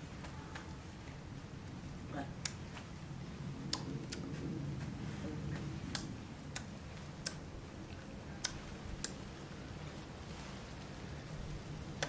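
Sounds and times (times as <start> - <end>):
low steady background noise: 0.0 - 12.0
sharp clicks: 3.7 - 4.3, 5.9 - 7.5, 8.4 - 9.2.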